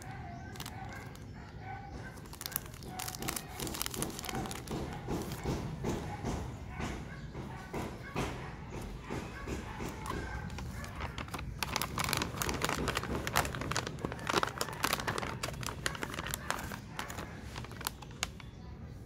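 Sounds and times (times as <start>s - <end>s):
packaging crinkling and rustling: 0.0s - 5.6s, 9.8s - 18.6s.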